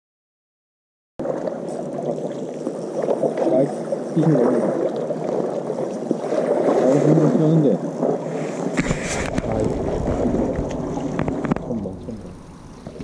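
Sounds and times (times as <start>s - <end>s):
microphone handling noise: 8.3s - 13.0s
wind rumble: 8.3s - 13.0s.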